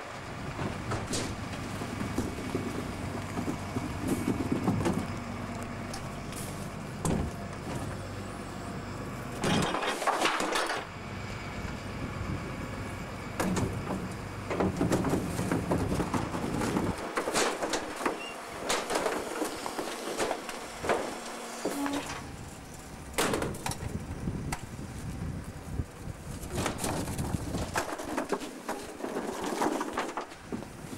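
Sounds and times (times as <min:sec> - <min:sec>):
engine and hydraulics humming: 0:00.0 - 0:29.3
compactor clattering and knocking: 0:00.4 - 0:05.3, 0:09.4 - 0:10.9, 0:13.4 - 0:21.3.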